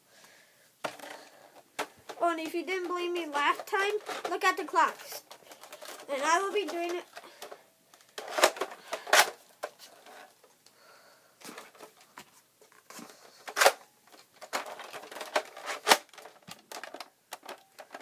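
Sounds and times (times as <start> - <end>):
plastic clicks and knocks: 13.0 - 18.0.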